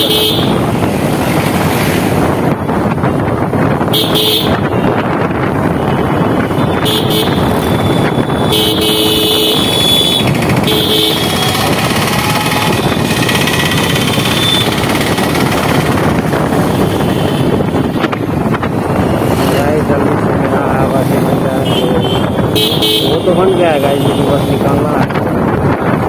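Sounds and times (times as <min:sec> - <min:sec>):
vehicle horn honks: 0:00.0 - 0:00.6, 0:03.9 - 0:05.0, 0:05.9 - 0:11.7, 0:14.2 - 0:14.8, 0:21.6 - 0:23.3
motorcycle engine: 0:00.0 - 0:26.0
wind: 0:00.0 - 0:26.0.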